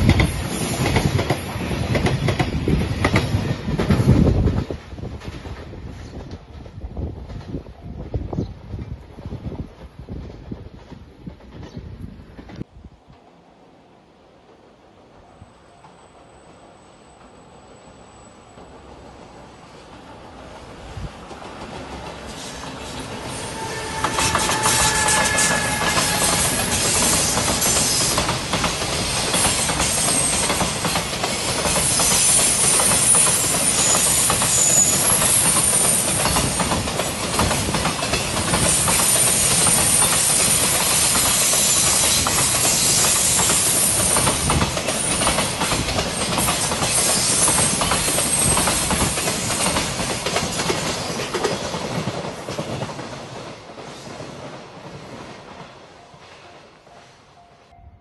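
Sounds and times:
freight train wheels clattering: 0.0s - 7.7s, 21.2s - 56.4s
high-pitched wheel squeal: 22.4s - 28.2s, 31.9s - 36.0s.

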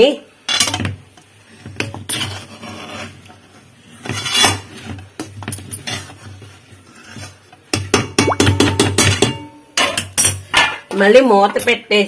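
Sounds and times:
spatula scraping a metal pan: 1.5s - 7.8s.

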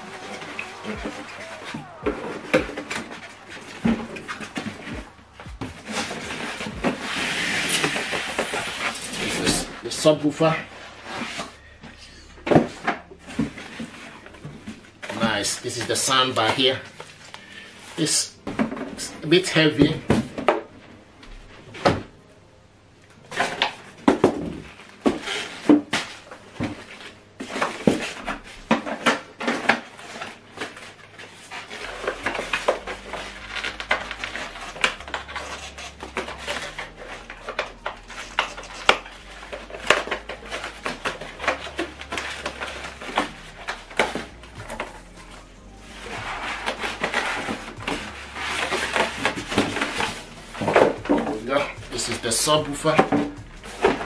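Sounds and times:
plastic wrap rustling: 0.0s - 11.7s, 24.6s - 54.0s
foam blocks squeaking: 0.0s - 20.4s, 23.3s - 54.0s
knocks and scrapes: 23.3s - 54.0s.

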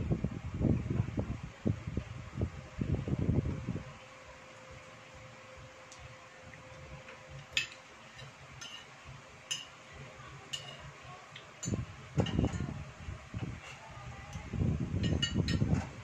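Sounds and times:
cutlery clinking on ceramic plate: 7.5s - 8.9s, 9.5s - 9.7s, 10.5s - 10.8s, 15.0s - 15.7s.

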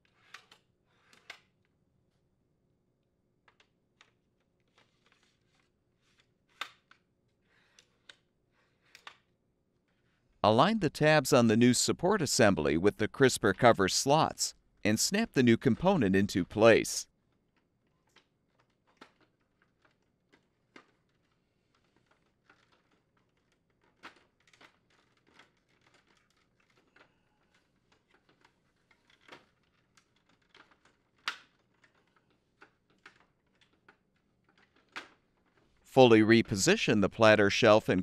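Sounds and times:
plastic parts clicking and knocking: 17.4s - 35.7s.

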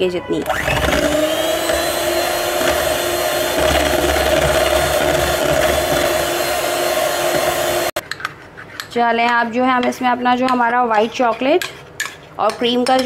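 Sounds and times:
electric hand mixer running: 0.4s - 8.0s.

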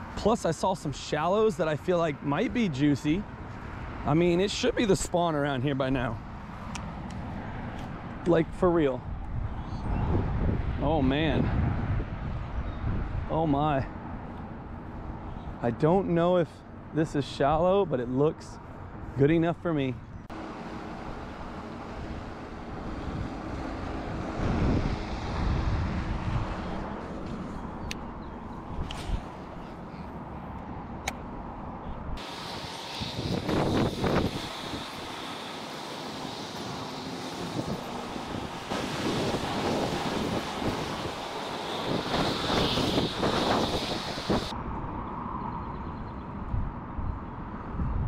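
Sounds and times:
wind buffeting microphone: 6.0s - 15.6s, 21.0s - 35.4s, 36.2s - 48.0s.

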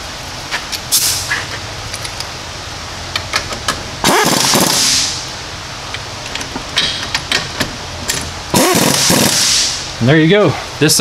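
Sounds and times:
fan hum: 0.0s - 11.0s
air impact wrench burst: 0.9s - 1.4s, 4.0s - 5.3s, 8.5s - 10.0s.

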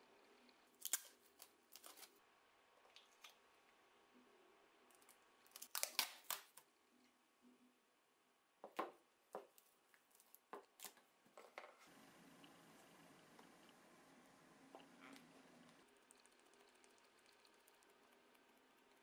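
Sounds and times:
tape crackling: 0.7s - 2.2s, 5.0s - 6.7s
packing tape ripping: 5.5s - 6.6s.

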